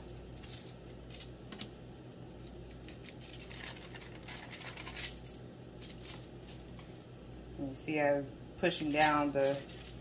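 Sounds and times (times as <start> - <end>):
faint steady hum: 0.0 - 10.0
foil crinkling: 2.4 - 7.0, 8.8 - 10.0.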